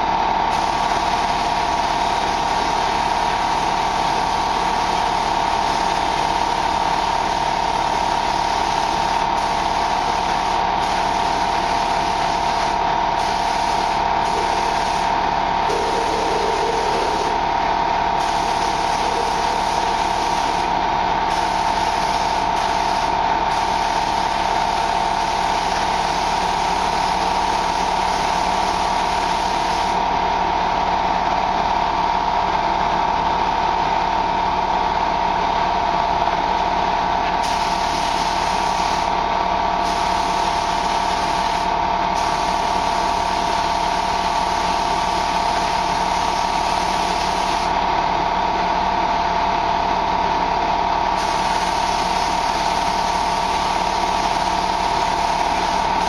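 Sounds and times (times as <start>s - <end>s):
loud mechanical hum: 0.0s - 56.0s
paint spray gun hissing: 0.5s - 3.0s, 7.8s - 17.4s, 18.2s - 30.0s, 37.4s - 39.1s, 39.8s - 47.7s, 51.2s - 56.0s.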